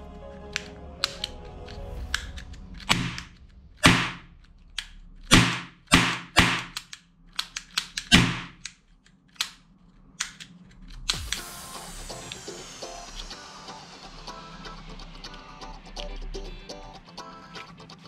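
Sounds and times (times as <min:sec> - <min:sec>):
trigger and hammer clicks: 0:00.5 - 0:11.5
toy revolver bangs: 0:02.9 - 0:04.3, 0:05.3 - 0:08.8.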